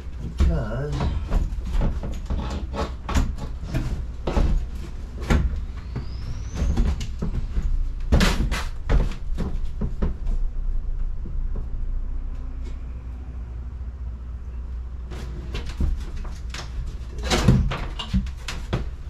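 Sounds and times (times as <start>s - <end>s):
knocks and rattles of panelling: 0.0s - 12.9s
steady low rumble: 6.8s - 17.2s.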